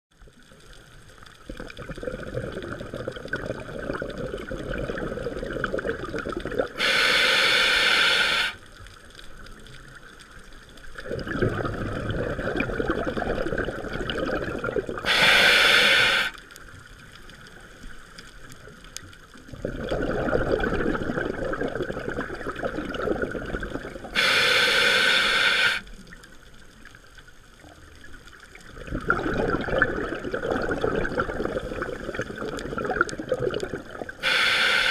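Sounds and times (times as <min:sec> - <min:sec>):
exhaled bubbles underwater: 0:00.2 - 0:34.9
regulator hiss on inhale: 0:06.7 - 0:08.8, 0:15.0 - 0:16.6, 0:24.0 - 0:26.0, 0:34.1 - 0:34.9.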